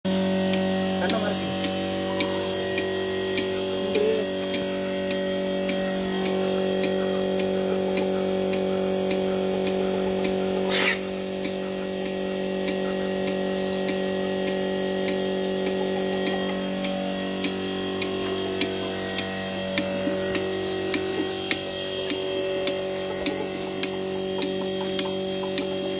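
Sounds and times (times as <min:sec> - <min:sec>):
pulsator ticking: 0:00.1 - 0:25.9
vacuum pump humming: 0:00.1 - 0:25.9
sharp click: 0:10.7 - 0:11.6.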